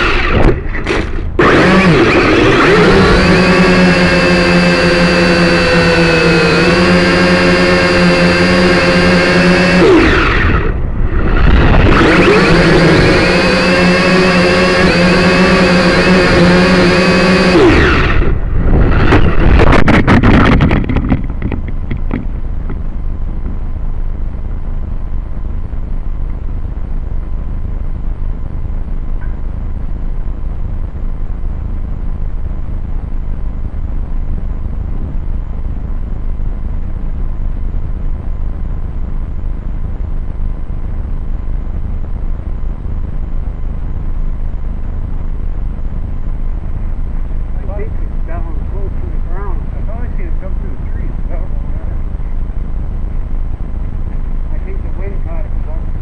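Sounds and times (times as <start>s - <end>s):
quadcopter motor whine: 0.0s - 23.2s
wind buffeting microphone: 17.8s - 23.7s.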